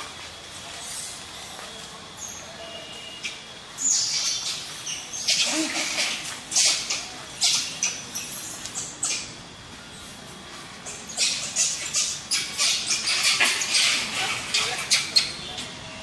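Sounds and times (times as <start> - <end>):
young macaques squealing: 3.2 - 9.4, 10.8 - 15.8.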